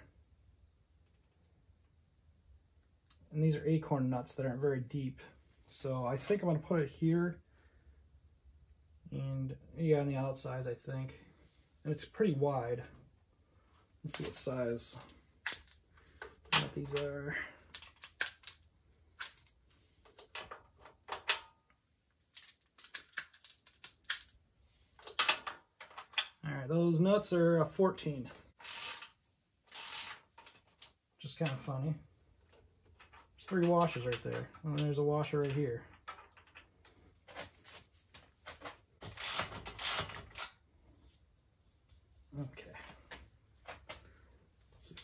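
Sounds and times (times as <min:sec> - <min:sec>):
metal sockets clicking and clinking: 0:17.7 - 0:21.5, 0:22.3 - 0:24.4
ratchet wrench clicking: 0:28.6 - 0:30.2, 0:39.2 - 0:40.5.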